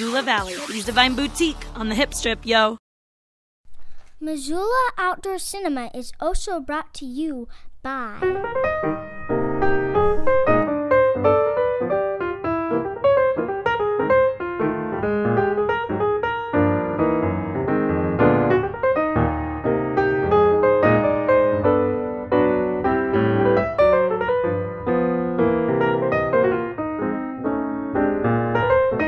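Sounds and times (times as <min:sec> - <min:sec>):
piano music: 0:08.2 - 0:29.0.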